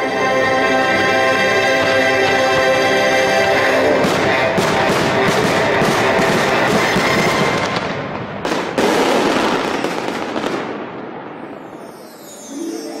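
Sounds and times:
fireworks crackling and booming: 3.7s - 11.8s.

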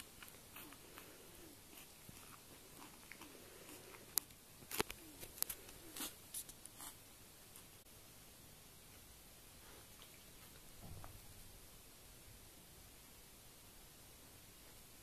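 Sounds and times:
faint rustling and scratching: 0.0s - 7.8s.

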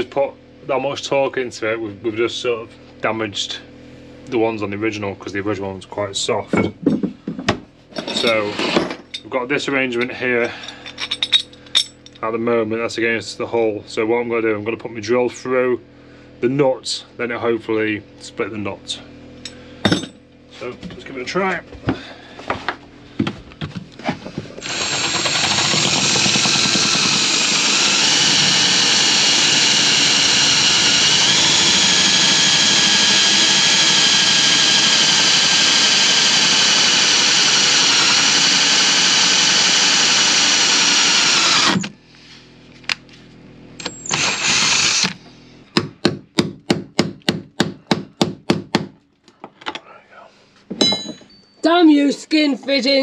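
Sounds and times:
cordless drill whining: 24.6s - 42.0s, 43.8s - 45.2s.

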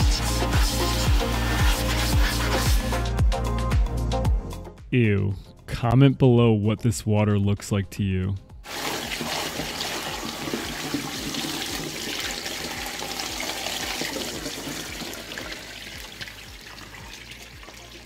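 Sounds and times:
water splashing onto drain grate: 8.7s - 18.0s.

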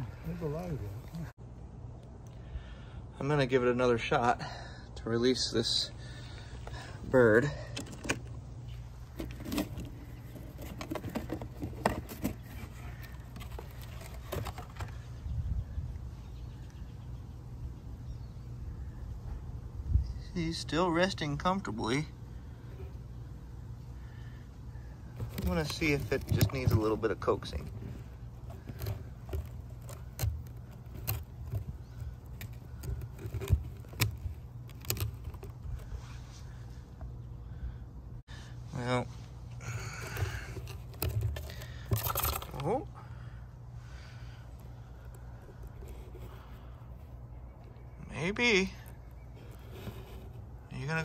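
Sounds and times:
cardboard box clicks and scrapes: 9.1s - 15.0s, 25.2s - 36.0s, 40.0s - 42.6s
cardboard box knocks and scrapes: 9.2s - 15.0s.

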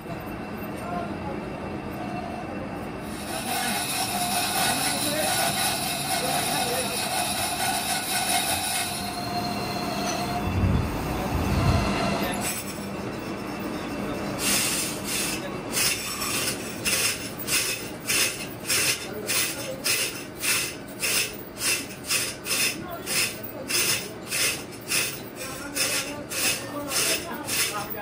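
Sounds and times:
metal on metal squealing: 3.1s - 17.0s.

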